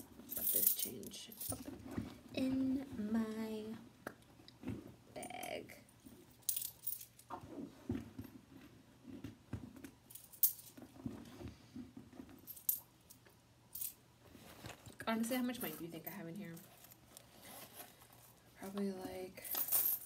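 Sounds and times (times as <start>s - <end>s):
coins clinking: 0.0s - 1.6s, 6.4s - 7.2s, 19.4s - 20.0s.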